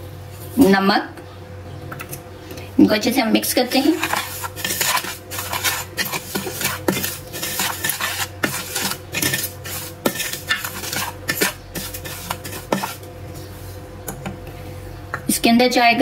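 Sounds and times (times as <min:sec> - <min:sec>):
spoon scraping a ceramic bowl: 0:03.7 - 0:13.1.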